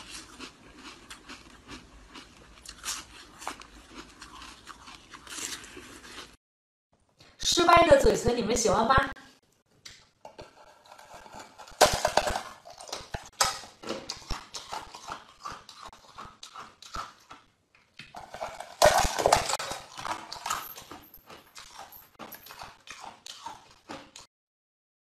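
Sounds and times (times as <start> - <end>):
person chewing ice: 0.0 - 6.4, 10.3 - 24.3.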